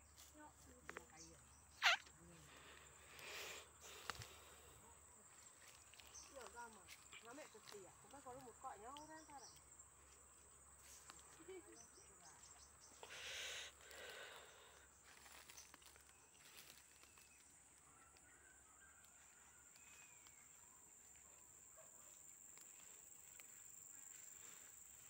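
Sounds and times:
fern fronds rustling: 0.0s - 9.0s, 13.1s - 17.8s.

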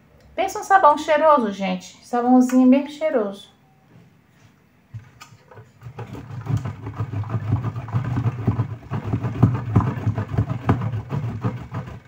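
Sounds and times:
soap grated on metal grater: 5.8s - 12.0s.

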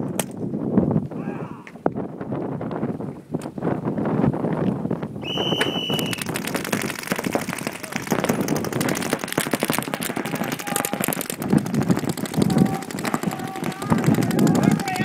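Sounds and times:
paintball markers firing: 5.6s - 15.0s.

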